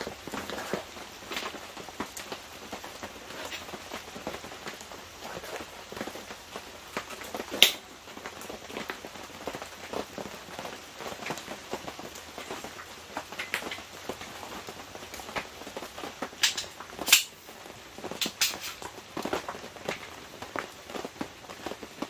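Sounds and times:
metal table legs clanking: 16.4s - 17.4s, 18.2s - 18.8s.

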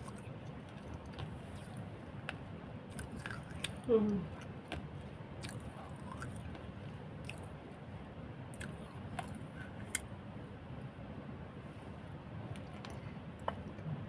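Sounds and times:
person chewing: 0.0s - 1.9s, 2.9s - 7.6s, 8.5s - 10.1s.

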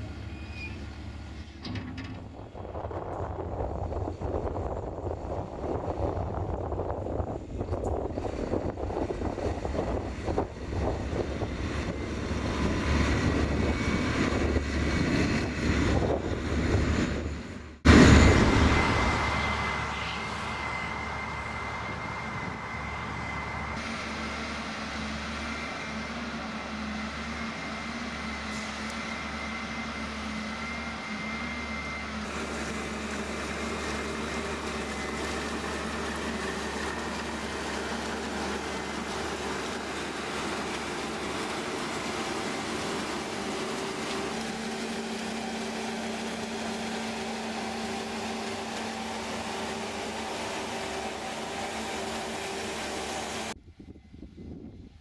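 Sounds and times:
diesel engine rumbling: 0.0s - 53.6s
harvester machine drone: 0.0s - 55.0s
wind noise on microphone: 2.2s - 17.6s, 53.5s - 55.0s
high machine whine: 4.4s - 54.8s.

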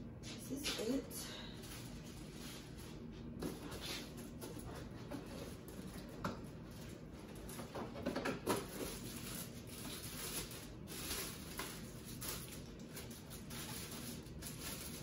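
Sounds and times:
plastic packaging crinkling: 6.6s - 15.0s.

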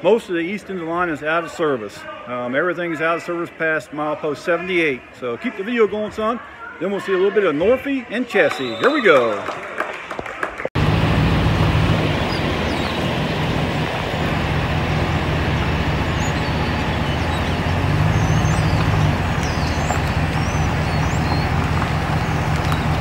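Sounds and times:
low rumble with hiss: 10.8s - 23.0s
small birds chirping: 11.5s - 23.0s.

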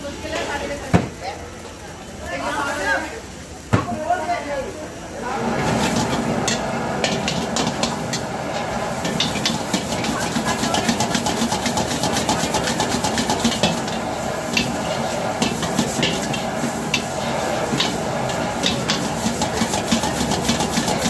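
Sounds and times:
food sizzling: 0.0s - 21.0s
gas burner hissing: 0.1s - 21.0s
metal spatula scraping a wok: 5.5s - 21.0s.

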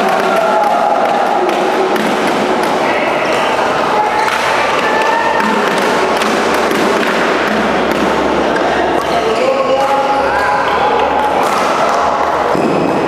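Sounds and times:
busy sports hall din: 0.0s - 13.0s
racket striking shuttlecock: 5.4s - 9.1s.

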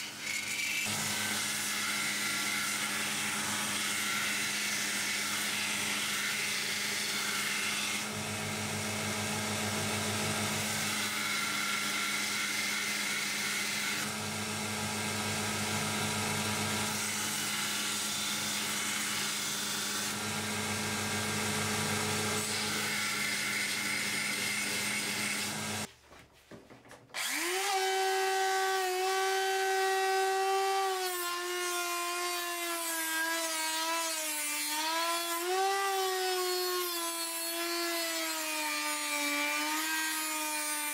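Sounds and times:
belt grinder grinding steel: 0.0s - 25.9s
rotary tool whining: 19.8s - 25.9s.

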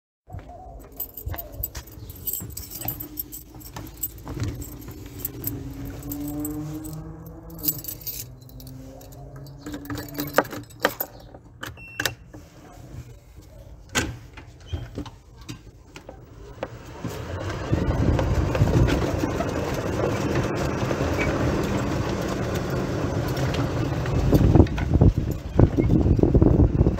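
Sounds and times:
keys jingling: 0.8s - 11.6s.

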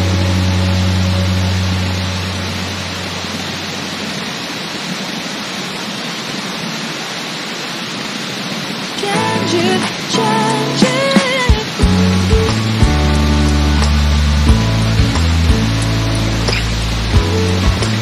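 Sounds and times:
song held low note: 0.0s - 4.2s, 9.2s - 18.0s
waterfall rushing: 0.0s - 18.0s.

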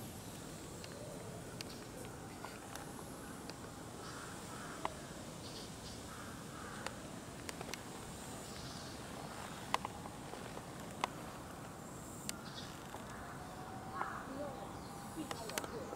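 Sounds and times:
faint outdoor background noise: 0.0s - 15.9s
faint bird calls: 0.3s - 15.9s.

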